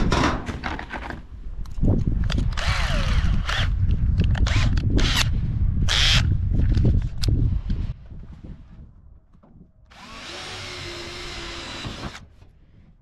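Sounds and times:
power drill driving screws: 2.5 - 3.8, 9.9 - 12.3.

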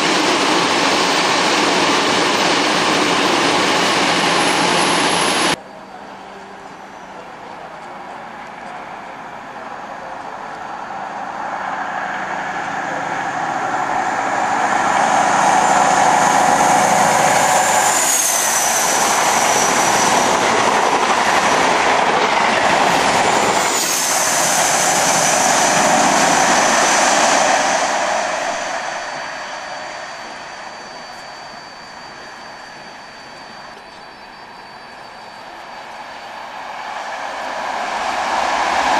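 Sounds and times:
diesel train passing at speed: 0.0 - 38.9.

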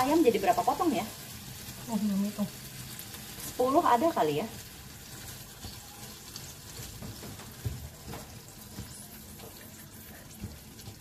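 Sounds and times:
spatula knocking pan: 5.0 - 11.0.

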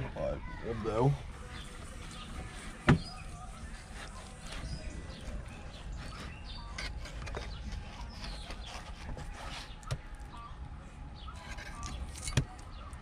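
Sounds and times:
birds chirping: 0.0 - 13.0
knife cutting and scraping fish: 3.5 - 10.4, 11.3 - 13.0.

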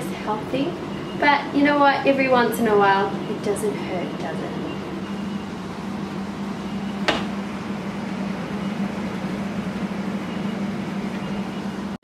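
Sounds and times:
fan oven humming: 0.0 - 12.0
oven door click: 7.0 - 7.4.

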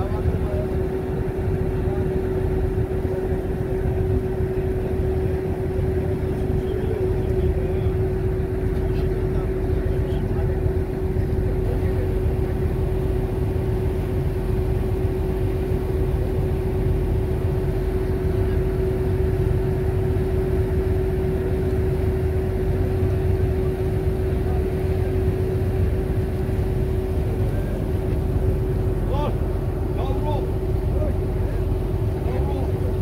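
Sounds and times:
ferry engine drone: 0.0 - 33.0
water rushing in wake: 0.0 - 33.0.

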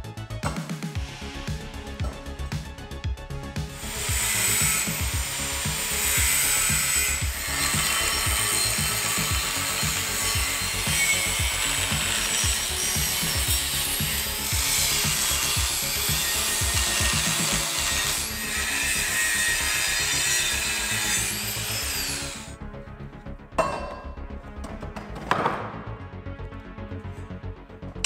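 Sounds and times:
background music with a beat: 0.0 - 18.3
angle grinder cutting steel: 3.8 - 22.6.

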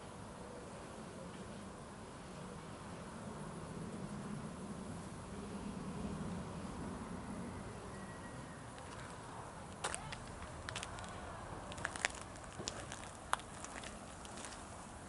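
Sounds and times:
footsteps on dirt: 9.8 - 14.9.

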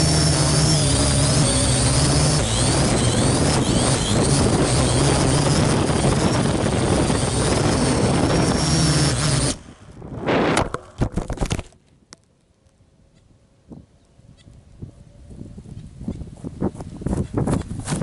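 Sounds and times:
drone rotors buzzing: 0.0 - 11.6
drone crashing on grass: 0.0 - 11.8.

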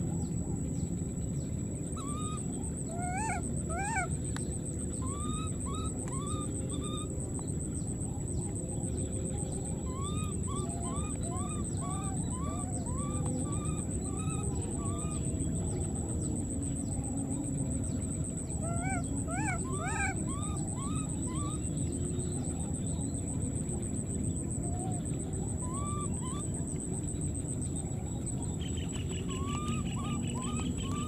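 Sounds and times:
baby monkeys crying: 2.0 - 4.2, 5.0 - 7.1, 9.8 - 15.3, 18.5 - 21.7, 25.6 - 26.4, 29.2 - 31.0.

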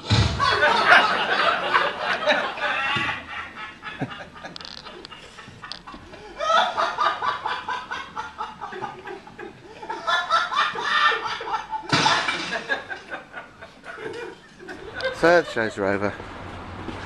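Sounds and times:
sharp slap: 0.0 - 0.5
people laughing: 0.0 - 16.3.

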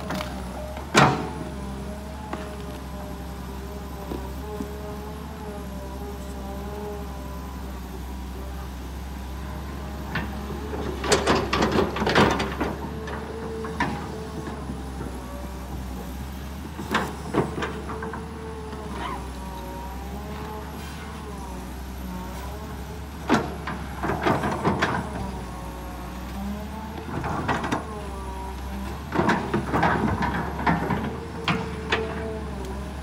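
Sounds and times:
excavator diesel engine running: 0.0 - 33.0.

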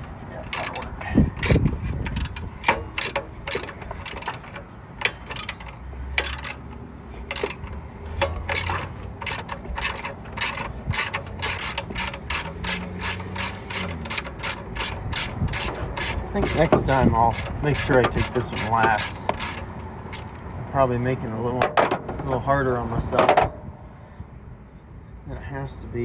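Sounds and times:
socket ratchet clicking: 0.0 - 20.6.

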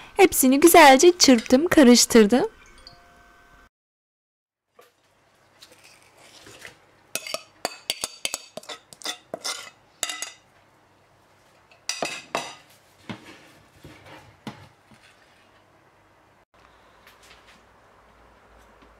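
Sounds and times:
utensil scraping metal bowl: 5.6 - 10.4.

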